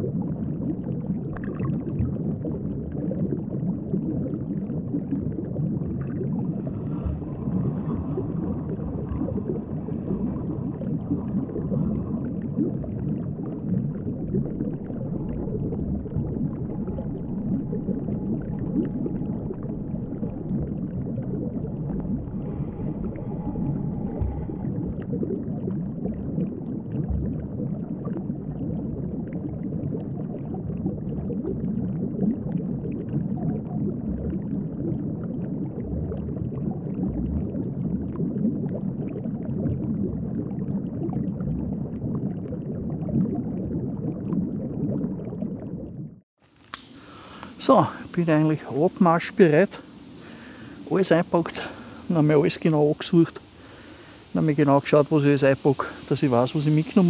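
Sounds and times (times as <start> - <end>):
underwater rumble and gurgle: 0.0 - 57.0.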